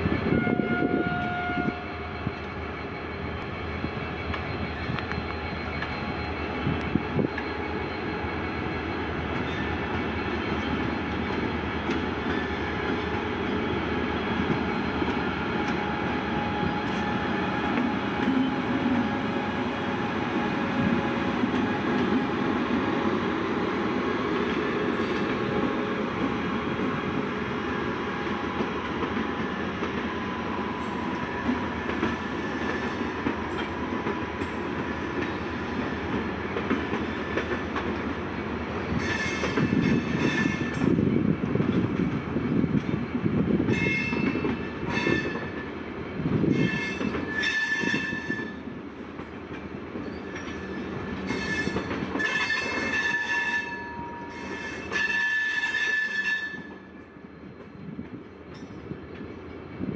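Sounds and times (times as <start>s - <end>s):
train horn tone: 0.0s - 2.6s, 43.7s - 45.6s, 46.5s - 48.6s, 51.3s - 56.9s
train wheels rumbling on rails: 0.0s - 59.9s.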